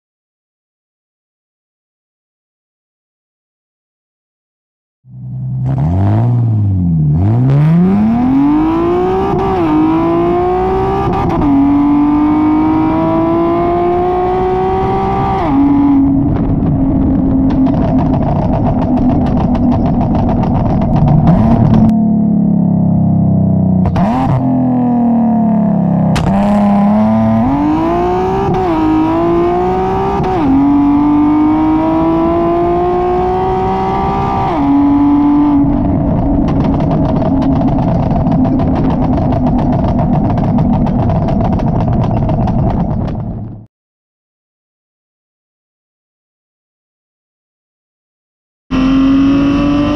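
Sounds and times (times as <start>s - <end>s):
car exhaust revving through gears: 5.1s - 43.6s, 48.7s - 49.9s.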